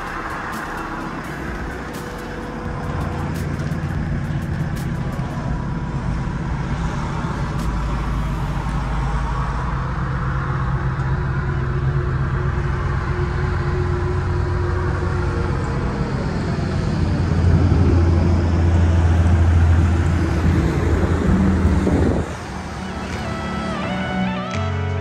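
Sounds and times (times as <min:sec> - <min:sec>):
diesel engine idling: 0:00.0 - 0:25.0.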